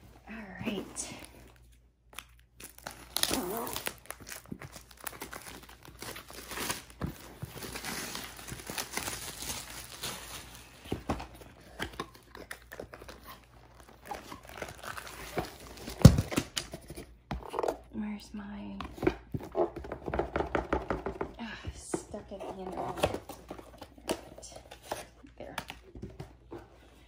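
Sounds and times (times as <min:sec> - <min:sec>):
packaging crinkling and rustling: 0:00.7 - 0:17.6.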